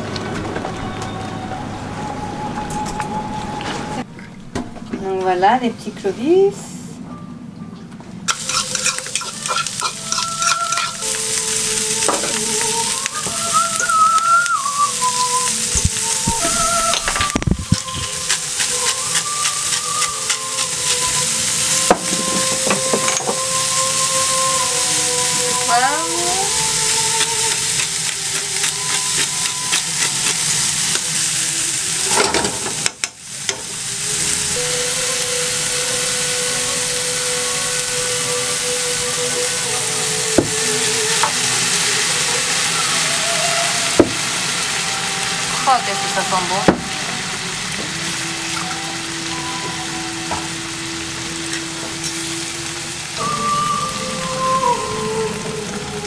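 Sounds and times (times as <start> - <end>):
utensil stirring: 8.3 - 31.2
clams and onion sizzling in a pan: 8.3 - 56.0.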